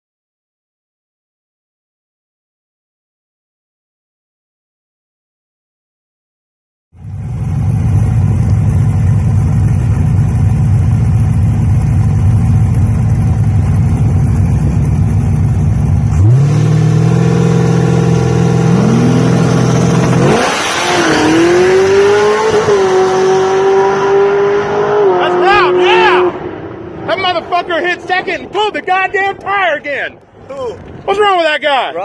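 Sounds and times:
drag car engines revving: 7.0s - 29.6s
drag cars launching: 16.0s - 31.7s.

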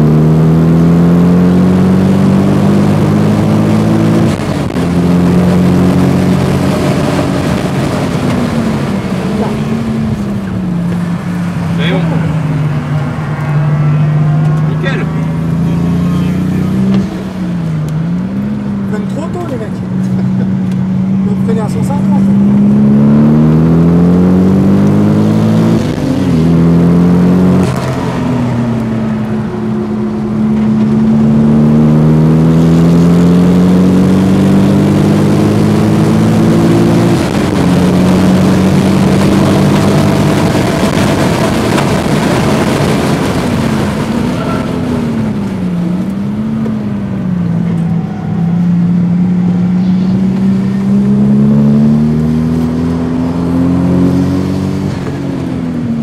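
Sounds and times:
car engine revving: 0.0s - 56.0s
tyre and wind noise: 33.7s - 56.0s.

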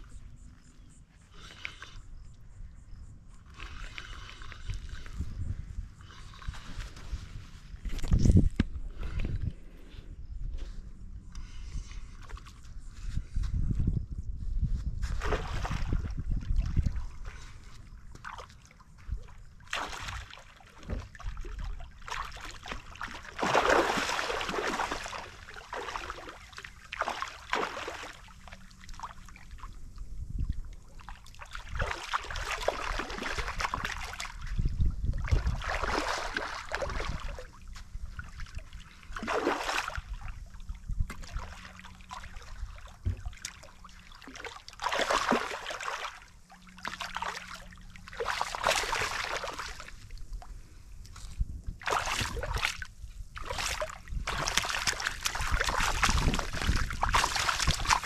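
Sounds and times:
water lapping against shore: 3.3s - 5.4s, 15.0s - 58.0s
fish thrashing and splashing: 19.7s - 29.4s, 31.1s - 34.5s, 35.2s - 37.5s, 38.1s - 50.1s, 51.8s - 52.8s, 53.4s - 58.0s.

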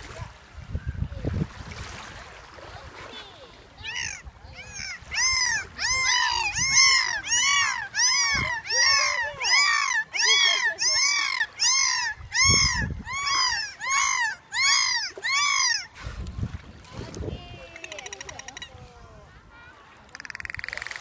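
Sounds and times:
dolphin whistling calls: 3.9s - 16.3s.

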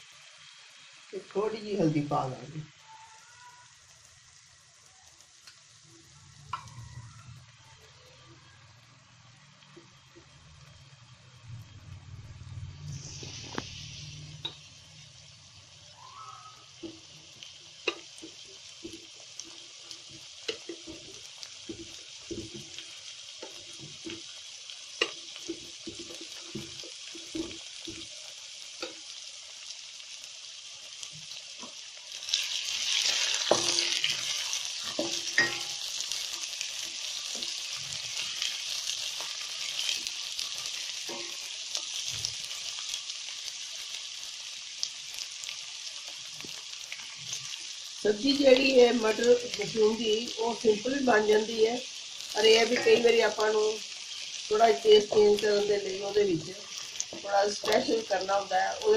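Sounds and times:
onions sizzling in hot oil: 0.0s - 58.9s
spatula stirring onions: 12.9s - 58.9s.

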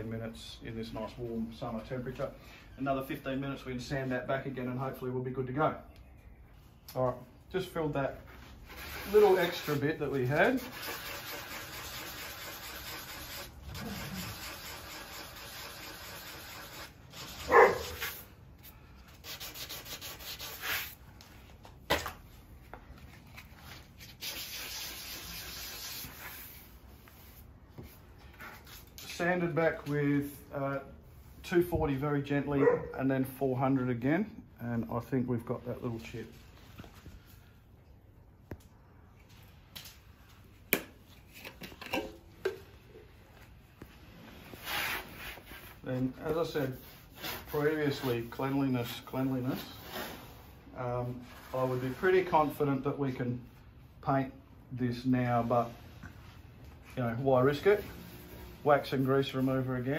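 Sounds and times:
sandpaper rubbing: 8.4s - 18.4s, 19.1s - 21.0s, 23.6s - 27.5s, 44.0s - 50.6s, 51.3s - 52.6s.

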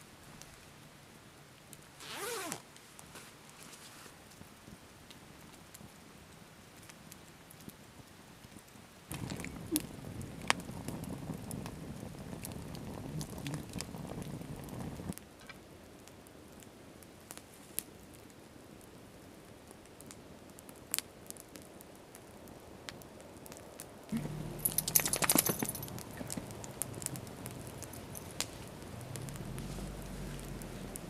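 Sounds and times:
campfire crackling and popping: 0.2s - 31.0s
low rumble: 24.1s - 31.0s.

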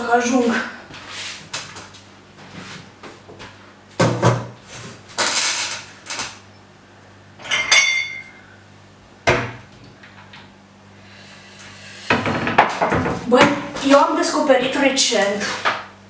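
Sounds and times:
glass clinking: 7.4s - 8.4s.

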